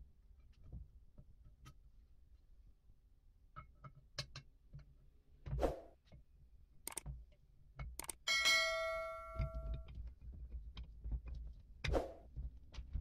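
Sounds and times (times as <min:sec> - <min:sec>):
steel parts clicking and knocking: 0:06.9 - 0:07.2
ringing bell chime: 0:08.3 - 0:09.8.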